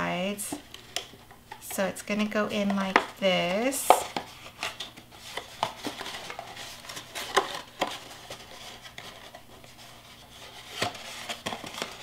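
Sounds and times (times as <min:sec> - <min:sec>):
paper rustling: 0:03.4 - 0:12.0.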